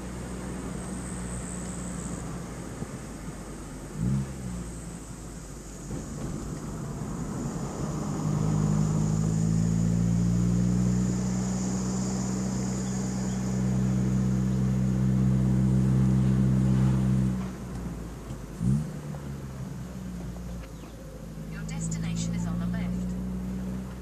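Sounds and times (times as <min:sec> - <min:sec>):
car engine and road noise: 0:00.0 - 0:24.0.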